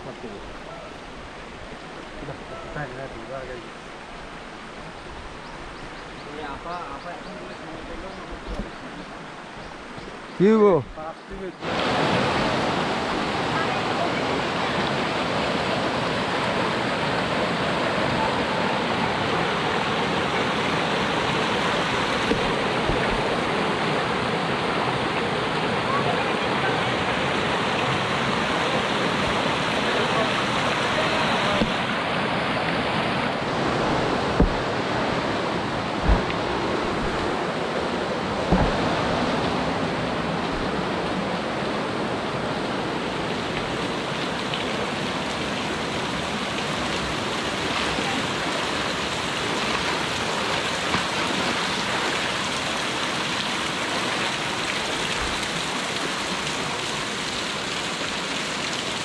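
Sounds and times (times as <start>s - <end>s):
flowing water rushing: 0.0s - 59.0s
dull knocks: 34.3s - 34.7s, 36.0s - 37.3s, 38.4s - 38.9s.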